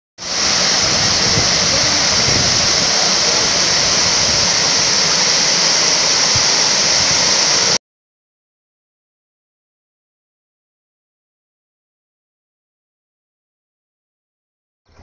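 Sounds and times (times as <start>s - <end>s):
waterfall rushing: 0.2s - 7.8s.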